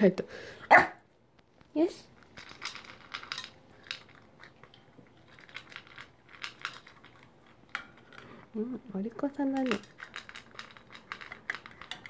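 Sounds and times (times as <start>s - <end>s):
dog chewing food: 2.1s - 8.5s, 9.5s - 12.0s.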